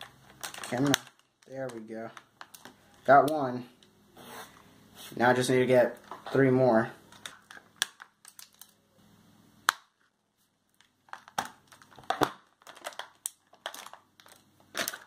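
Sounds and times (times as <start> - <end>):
plastic packaging crinkling: 0.0 - 3.4, 7.0 - 8.8, 10.0 - 15.0.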